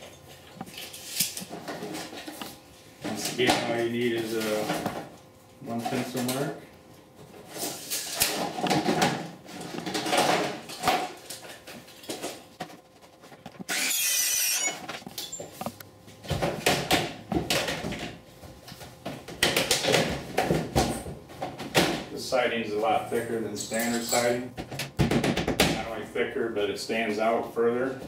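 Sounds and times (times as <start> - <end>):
circular saw cutting: 13.7 - 14.8.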